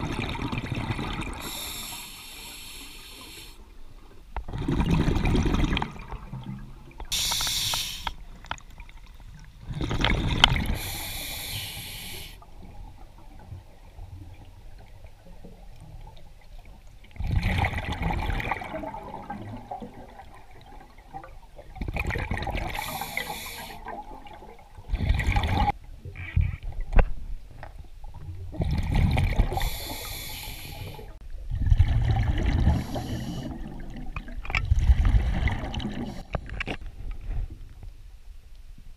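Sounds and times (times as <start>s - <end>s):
bubbles gurgling on exhalation: 0.0s - 1.6s, 4.5s - 7.0s, 9.6s - 10.9s, 17.2s - 23.2s, 23.8s - 25.8s, 28.5s - 29.8s, 31.5s - 36.2s
regulator hiss on inhalation: 1.4s - 3.6s, 7.1s - 8.2s, 10.8s - 12.4s, 22.8s - 23.8s, 29.5s - 31.1s.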